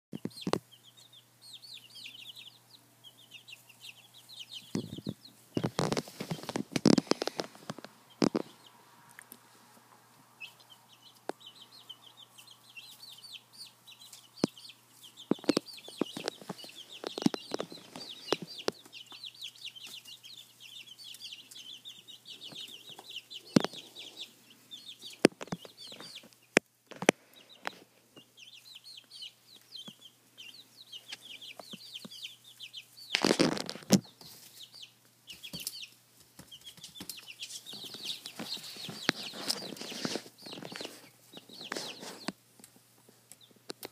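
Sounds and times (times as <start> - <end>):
chicks peeping: 0.1 - 43.9.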